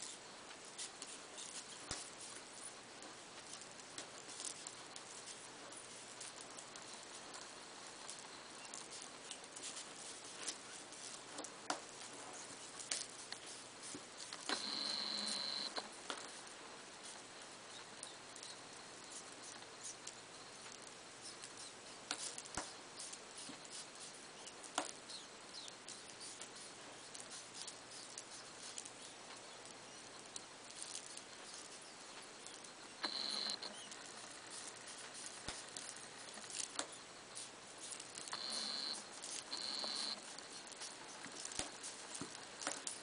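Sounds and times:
faint clicks and scratching: 0:00.0 - 0:43.0.

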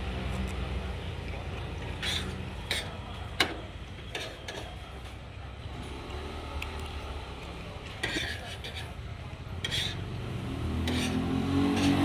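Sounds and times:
cutlery scraping on a plate: 0:01.9 - 0:04.8, 0:08.0 - 0:09.0, 0:09.6 - 0:10.0, 0:10.8 - 0:12.0.

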